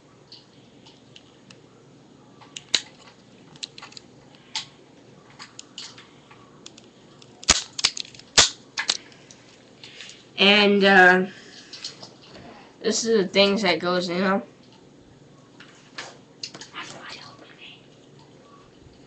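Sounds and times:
cap gun snaps: 7.4s - 9.0s.

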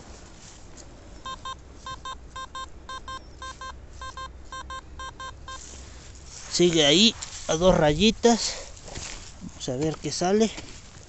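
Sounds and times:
metal detector beeping: 1.2s - 5.8s.

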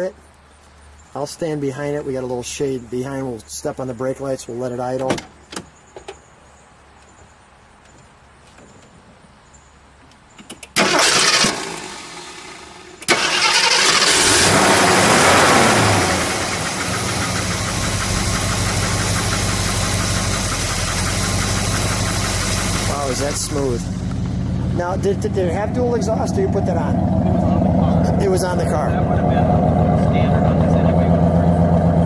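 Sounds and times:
car engine starting and idling: 10.6s - 32.0s.

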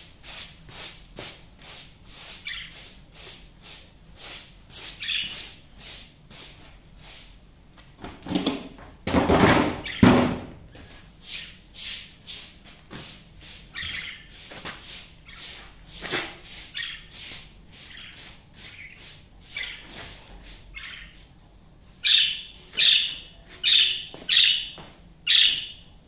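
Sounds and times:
budgerigars chirping: 2.4s - 2.8s, 5.0s - 5.4s, 9.8s - 10.1s, 13.7s - 14.3s, 16.7s - 17.1s, 17.9s - 19.8s, 20.8s - 21.2s, 22.0s - 25.8s.

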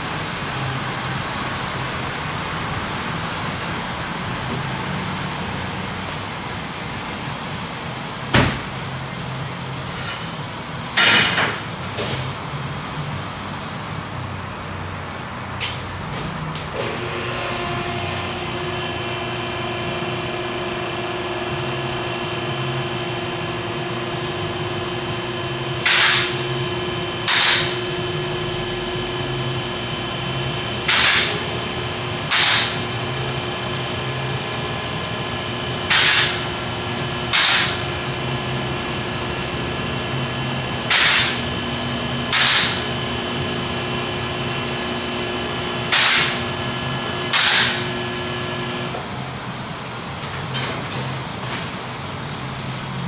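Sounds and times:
hydraulic power unit humming: 15.1s - 53.0s.

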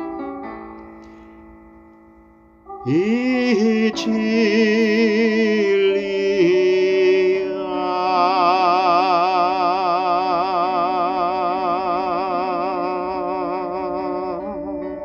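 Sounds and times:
sustained accompaniment chords: 0.0s - 15.0s
person singing with vibrato: 2.7s - 15.0s.

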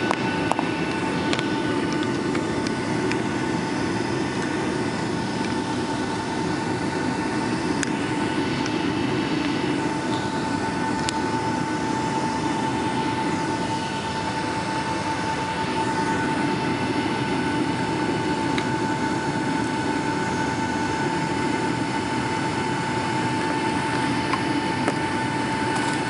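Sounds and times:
jet engines rumbling at low power: 0.0s - 26.0s
steady engine whine: 0.0s - 26.0s.

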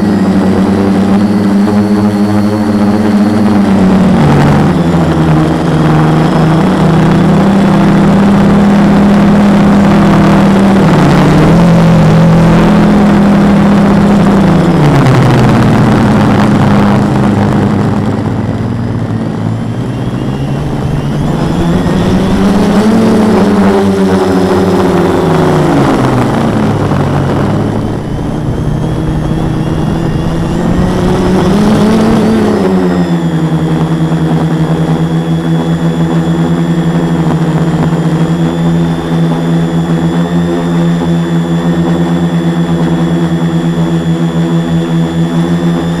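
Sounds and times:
quadcopter motors spinning: 0.0s - 46.0s.

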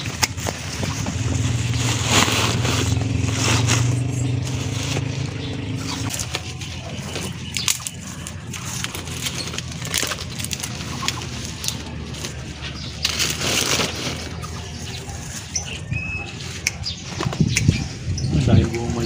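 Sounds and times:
engine humming: 0.0s - 19.0s
vines and leaves crackling: 0.0s - 19.0s
pruning shears snapping: 7.5s - 11.9s.

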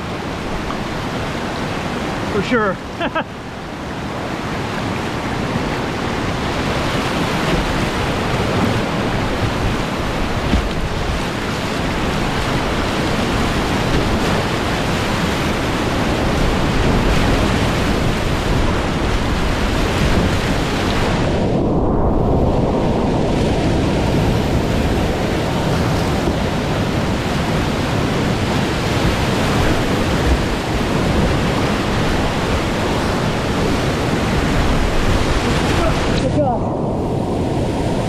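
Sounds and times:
whitewater rapids roaring: 0.0s - 21.8s, 22.8s - 38.0s.

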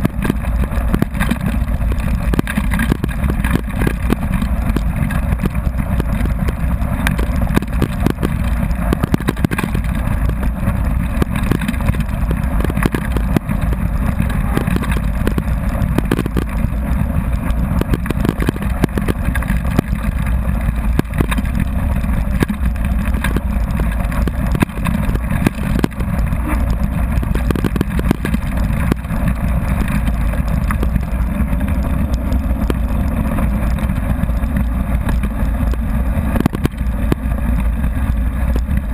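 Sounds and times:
bike knocking over stones: 0.0s - 38.9s
wind and tyre rumble: 0.0s - 38.9s.

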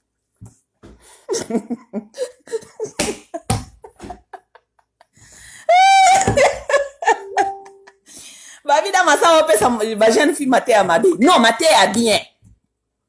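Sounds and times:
woman laughing: 1.3s - 5.1s, 5.7s - 8.0s.

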